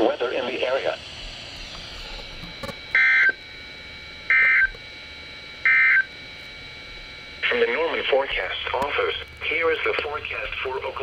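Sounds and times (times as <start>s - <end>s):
digital data bursts from radio: 0.0s - 1.0s, 7.4s - 11.0s.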